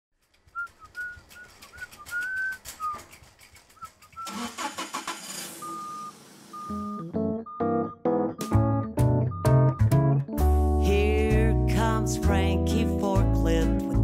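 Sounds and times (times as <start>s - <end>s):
irregular clicking: 0.2s - 4.3s
cartoon engine starting up: 0.8s - 7.1s
short steady beep: 5.5s - 8.0s
whistle-like high notes: 5.5s - 8.7s.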